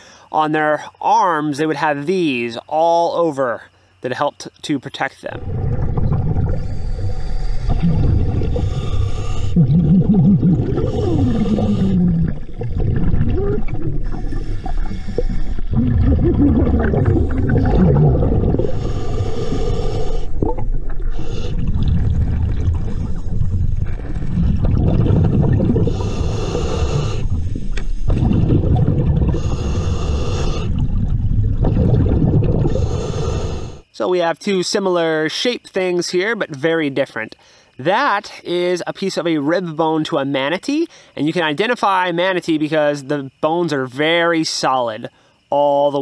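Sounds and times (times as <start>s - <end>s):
hissing breath: 0.0s - 0.3s, 6.5s - 9.8s, 10.7s - 12.5s, 13.9s - 15.8s, 18.6s - 20.4s, 21.0s - 21.8s, 25.7s - 28.1s, 29.3s - 30.8s, 32.6s - 33.9s
regulator bubbling underwater: 5.3s - 33.0s.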